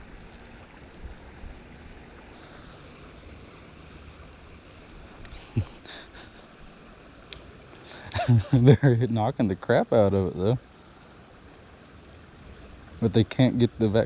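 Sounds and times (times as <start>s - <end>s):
wind rumbling on microphone: 0.0s - 2.4s
faint clicks: 7.3s - 7.5s.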